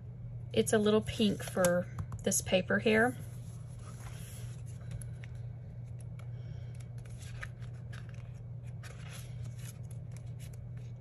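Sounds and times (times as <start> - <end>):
steady low hum: 0.0 - 11.0
paper pages rustling: 3.3 - 6.1, 6.8 - 11.0.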